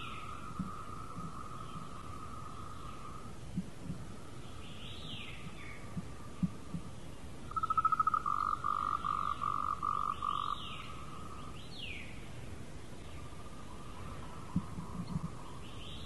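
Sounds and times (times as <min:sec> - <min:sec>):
steady high animal call: 0:07.5 - 0:11.5.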